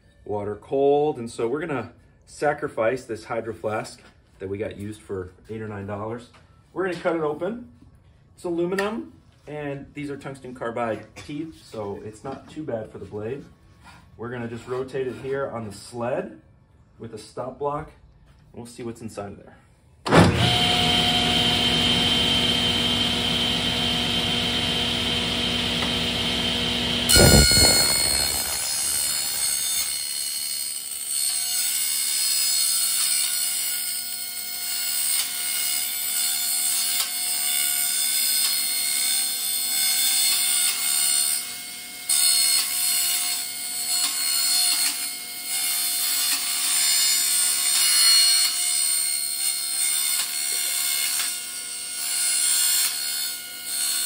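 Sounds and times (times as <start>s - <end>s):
table saw running: 20.2s - 30.9s
screech of metal being cut: 26.1s - 33.9s
saw blade hitting metal: 27.1s - 30.6s.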